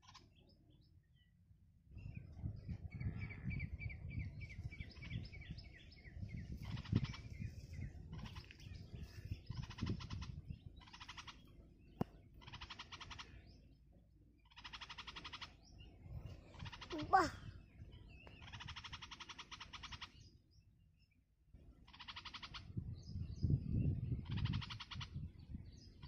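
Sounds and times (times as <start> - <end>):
nestlings chirping and begging: 3.3 - 20.6, 21.7 - 26.0
harsh buzzy bird calls: 8.1 - 11.7, 12.4 - 13.7, 14.4 - 20.4, 21.8 - 22.8.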